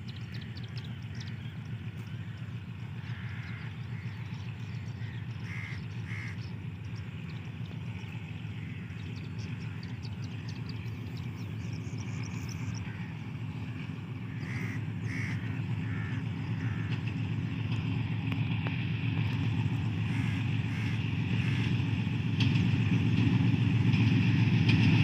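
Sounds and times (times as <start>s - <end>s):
distant locomotive engine rumble: 0.0s - 25.0s
crows cawing: 2.1s - 6.5s, 8.5s - 10.5s, 12.4s - 17.4s, 20.0s - 21.8s.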